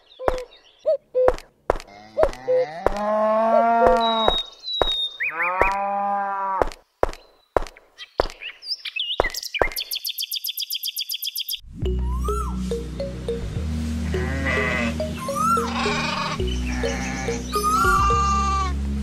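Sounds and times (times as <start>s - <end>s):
cow mooing: 1.9s - 4.3s, 5.3s - 6.6s, 14.0s - 18.7s
high chirps: 3.8s - 5.3s, 8.8s - 18.7s.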